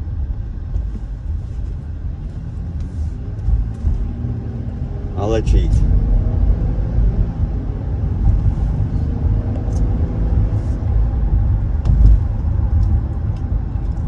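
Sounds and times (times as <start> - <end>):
road and engine rumble in car: 0.0 - 14.0
low thump: 11.7 - 12.6.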